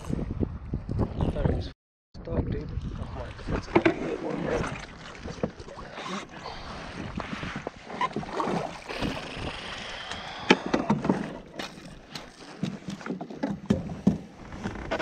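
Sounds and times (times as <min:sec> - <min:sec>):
water splashing: 0:02.8 - 0:14.0
clicks and thumps against hull: 0:10.4 - 0:15.0.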